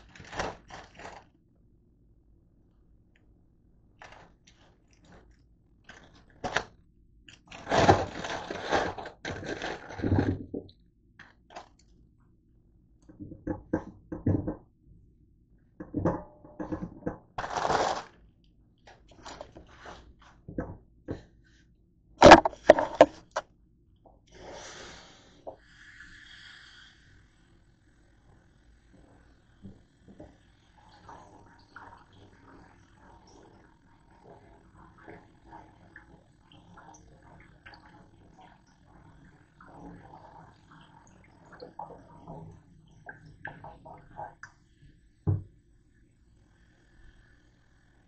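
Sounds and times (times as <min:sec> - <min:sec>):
kitchen items knocking in sink: 0:13.2 - 0:14.6, 0:15.8 - 0:18.0, 0:22.2 - 0:23.2.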